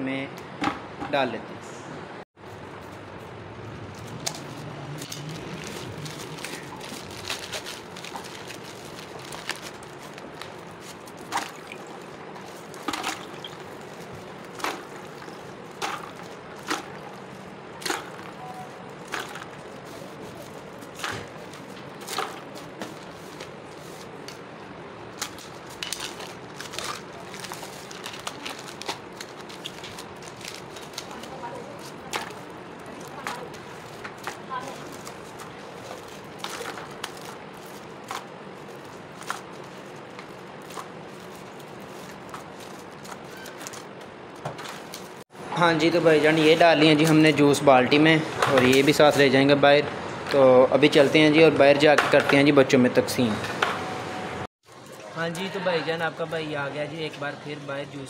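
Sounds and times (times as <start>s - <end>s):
cartons splashing into ice water: 11.2s - 12.0s, 12.8s - 13.7s.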